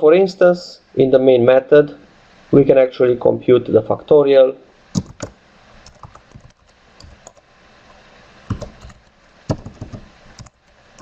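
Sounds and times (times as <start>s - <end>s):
computer keyboard typing: 5.0s - 7.4s, 8.5s - 11.0s.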